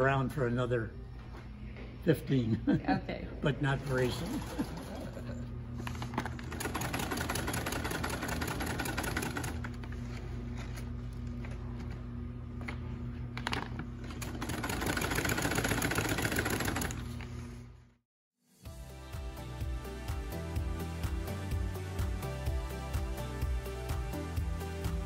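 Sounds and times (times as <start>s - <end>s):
sewing machine stitching: 6.3s - 9.8s, 14.2s - 17.1s.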